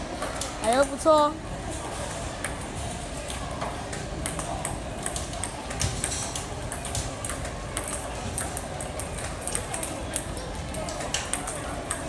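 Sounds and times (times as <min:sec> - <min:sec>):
table tennis ball clicks: 0:02.4 - 0:12.0.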